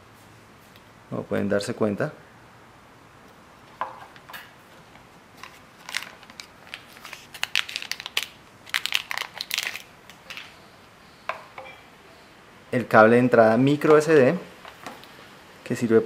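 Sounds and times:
packaging rustling and crinkling: 4.7s - 10.6s.

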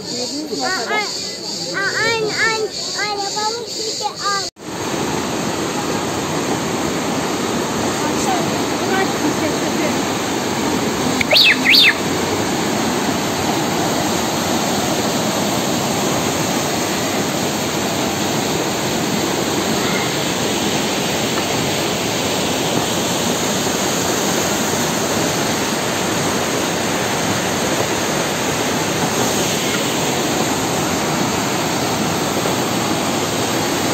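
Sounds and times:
river rushing over rocks: 4.6s - 33.9s
high-pitched squeals: 11.2s - 12.1s.

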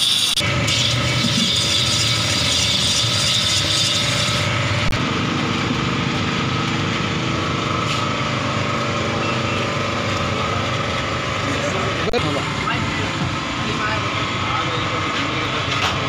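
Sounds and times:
blade shaving ice hiss: 0.0s - 4.5s
ice-shaving machine humming: 0.0s - 16.0s.

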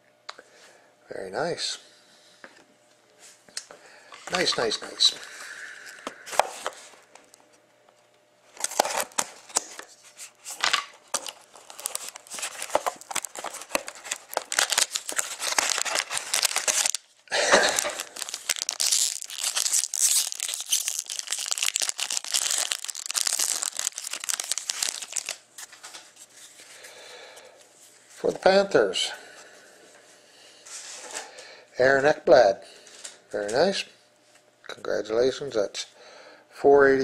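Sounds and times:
foil pack crinkling and tearing: 8.6s - 26.8s
cardboard box tearing open: 11.6s - 17.0s, 17.6s - 25.3s.

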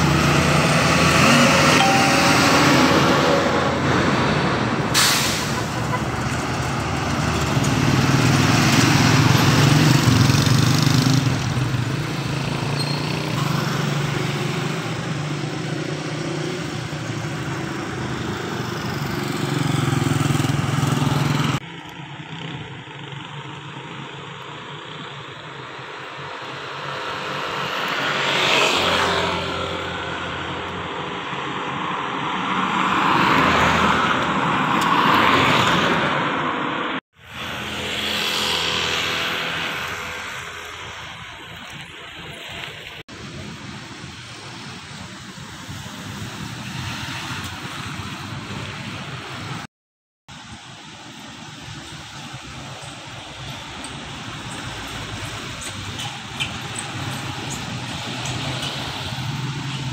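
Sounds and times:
vehicles passing: 0.0s - 49.7s, 50.3s - 59.9s
motorcycle engines humming: 5.6s - 32.5s, 51.1s - 59.9s.

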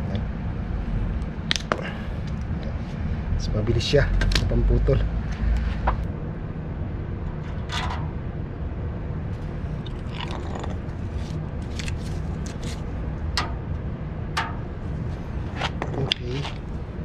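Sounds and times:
metal knocks and scraping clicks: 7.4s - 8.1s.

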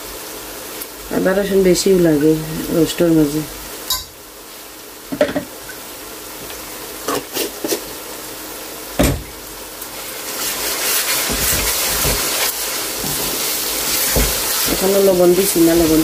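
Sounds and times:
onions sizzling in a pan: 0.0s - 16.0s
knocks on a pan: 9.0s - 9.3s
wooden spatula scraping a pan: 10.0s - 16.0s.

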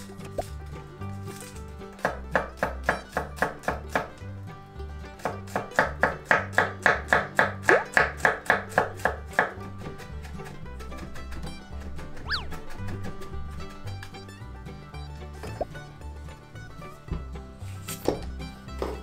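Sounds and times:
knife chopping on cutting board: 5.2s - 9.6s.

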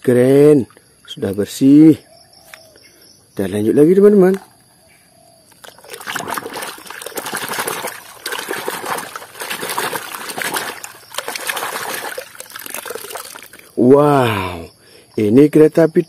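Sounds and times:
water splashing in plastic tub: 5.6s - 13.8s.

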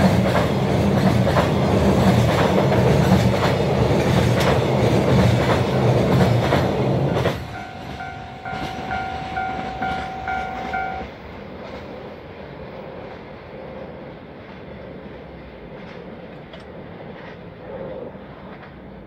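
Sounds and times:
freight train wheels clacking: 0.0s - 19.0s
train rumble: 0.0s - 19.0s
level crossing alarm ringing: 7.4s - 11.2s.

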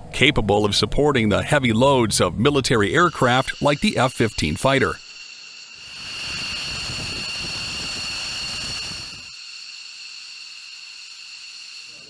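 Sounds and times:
jet engine high whine: 0.0s - 12.0s
jet engine rumble: 5.8s - 9.3s.

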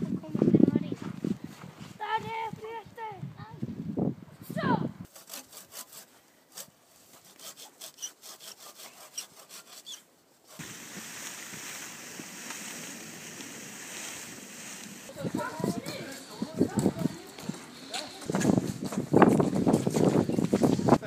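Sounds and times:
hand saw rasping through wood: 5.1s - 10.6s.

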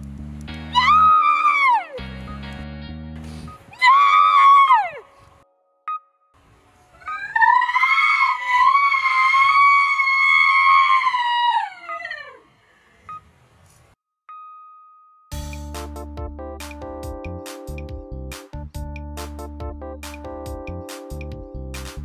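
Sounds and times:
woman screaming: 0.7s - 2.0s, 3.7s - 5.1s, 7.0s - 12.4s
piano music: 2.0s - 3.6s, 15.3s - 22.0s.

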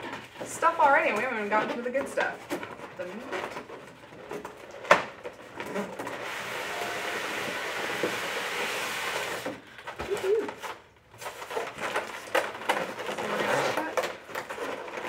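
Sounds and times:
foam block scraping out of box: 5.7s - 9.6s.

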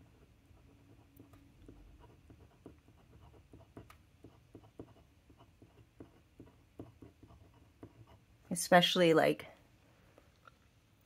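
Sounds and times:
pen nib scratching paper: 0.0s - 8.3s.

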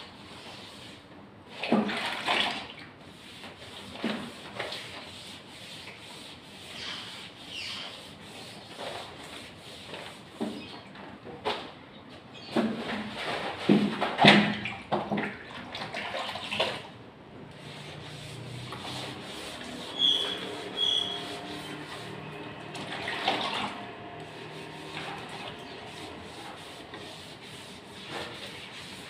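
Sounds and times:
wet sponge rubbing on wallpaper: 0.2s - 1.1s, 3.0s - 10.7s, 17.5s - 29.0s
water splashing in a bucket: 1.6s - 2.9s, 12.9s - 17.0s, 22.7s - 24.2s
short high squeaks: 19.9s - 22.7s.

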